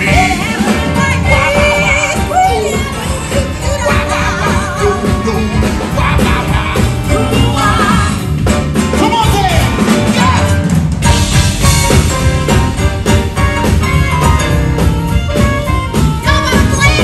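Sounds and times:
live band playing: 0.0s - 17.0s
man singing into a microphone: 3.9s - 8.0s.

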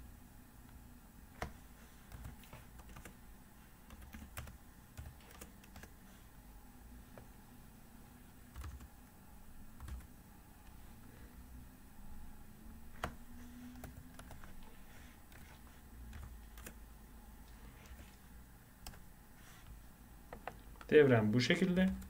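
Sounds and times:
computer keyboard keystrokes: 1.4s - 3.2s, 3.9s - 5.9s, 8.6s - 8.9s, 9.8s - 10.1s, 13.0s - 14.5s, 16.1s - 16.8s.

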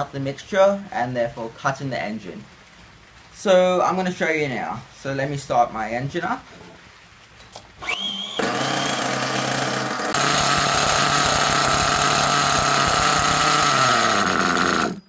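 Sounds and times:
starter whine: 7.8s - 15.0s
small nitro engine running: 7.9s - 15.0s.

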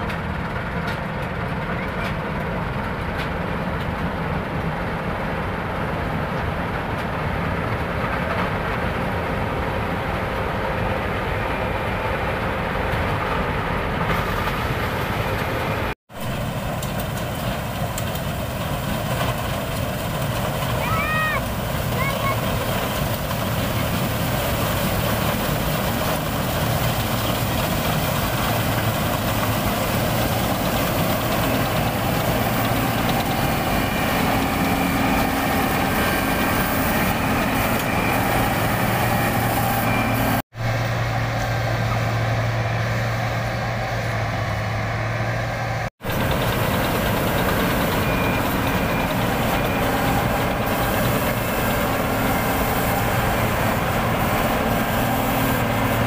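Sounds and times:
combine harvester engine drone: 0.0s - 56.0s.

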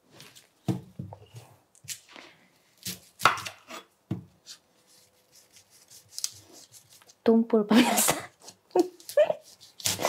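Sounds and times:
knife chopping on wooden board: 2.8s - 4.3s.

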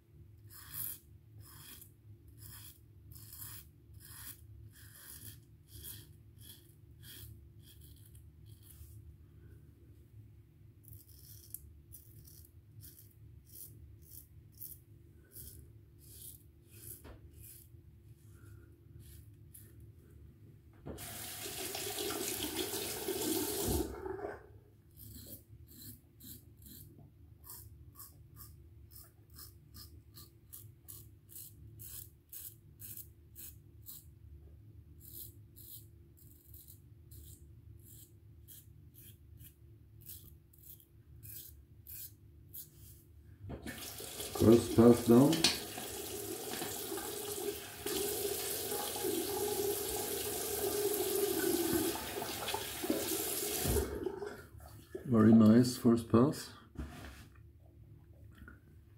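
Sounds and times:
razor scraping through stubble: 0.5s - 9.0s, 10.8s - 17.8s, 24.9s - 34.1s, 35.0s - 43.0s
water tap running: 21.0s - 24.4s, 43.6s - 54.4s.

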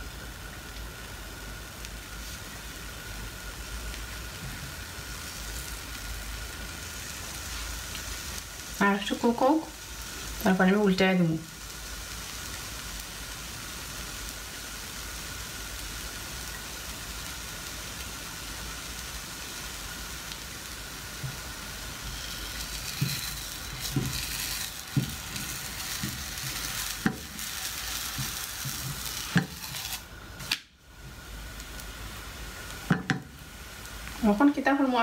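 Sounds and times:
batter sizzling in a frying pan: 0.0s - 35.0s
spatula knocking and scraping pan: 22.1s - 29.9s, 32.9s - 33.3s.

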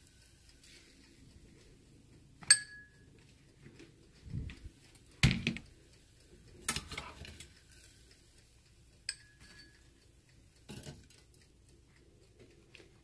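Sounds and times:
ringing metal clink: 2.4s - 3.0s, 9.1s - 9.8s
tongs and dishware clattering: 9.1s - 9.8s.

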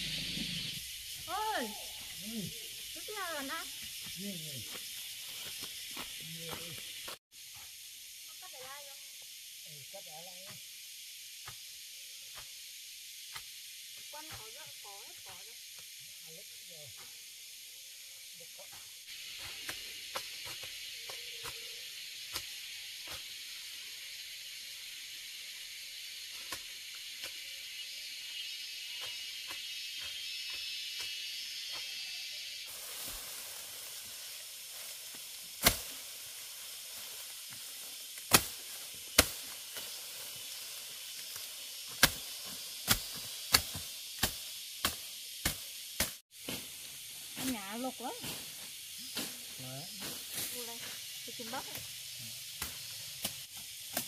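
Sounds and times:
steady high hiss: 0.0s - 54.0s
blade chopping grass stalks: 34.0s - 46.8s, 52.6s - 54.0s.

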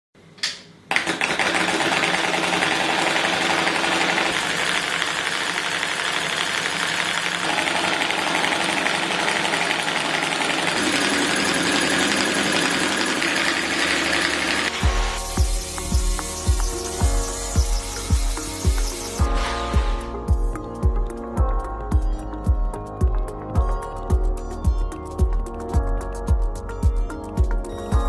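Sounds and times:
solenoid engine clattering: 0.9s - 14.8s.

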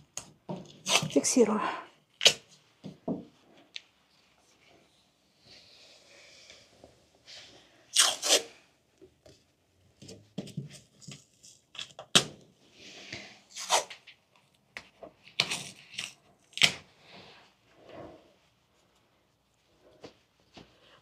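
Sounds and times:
adhesive tape ripping off roll: 0.8s - 1.2s, 7.9s - 8.5s, 13.5s - 14.1s.

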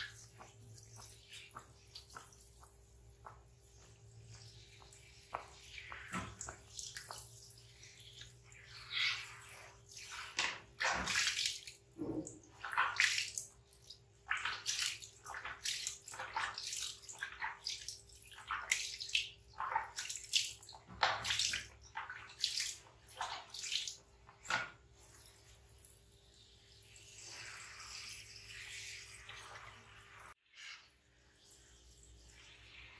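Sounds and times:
water splashing: 0.0s - 24.8s.

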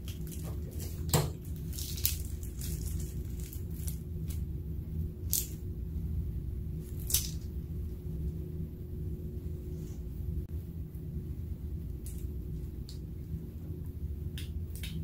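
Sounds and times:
plastic bag crinkling: 0.0s - 4.4s
steady low hum: 0.0s - 15.0s.

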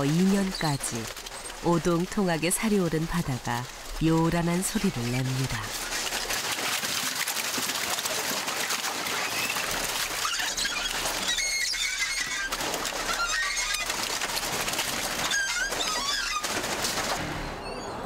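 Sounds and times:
water running off: 0.0s - 17.3s
high squeaks: 10.2s - 14.0s, 15.2s - 16.6s.

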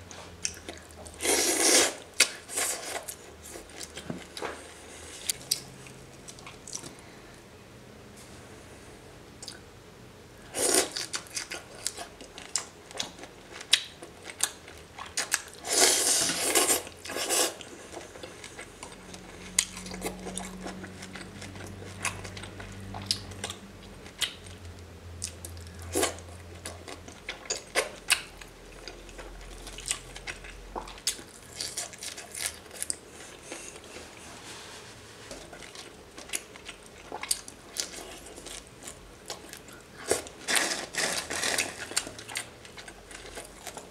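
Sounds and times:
chewing shrimp: 10.6s - 34.2s, 35.3s - 43.9s.

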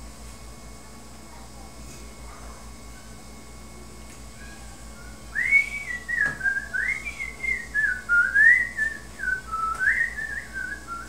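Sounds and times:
person whistling a tune: 5.3s - 11.0s.

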